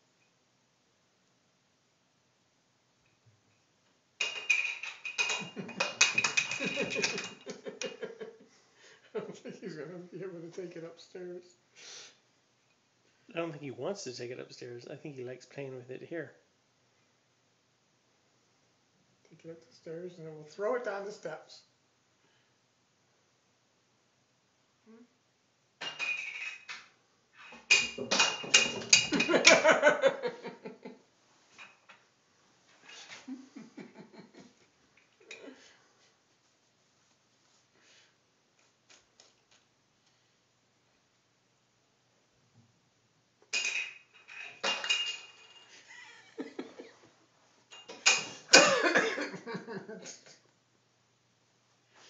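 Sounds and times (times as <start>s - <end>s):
bottle lid clattering on wooden floor: 4.2s - 7.5s, 27.6s - 29.6s.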